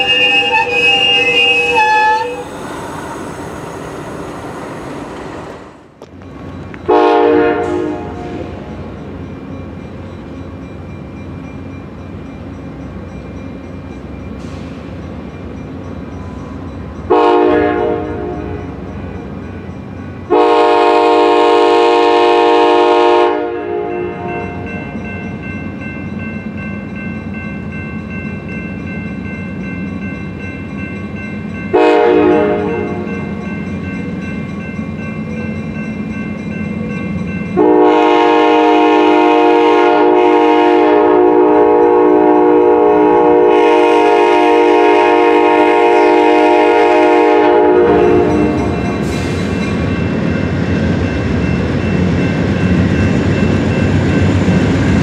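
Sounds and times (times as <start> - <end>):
locomotive horn blasts: 0.0 - 2.5, 6.9 - 8.6, 17.1 - 18.6, 20.3 - 24.7, 31.7 - 33.1, 37.6 - 49.0.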